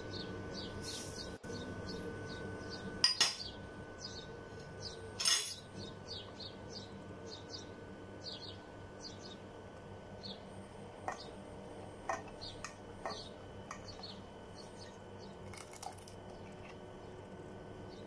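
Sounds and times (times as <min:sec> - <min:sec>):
dishware clinking against pot: 0:05.2 - 0:05.7.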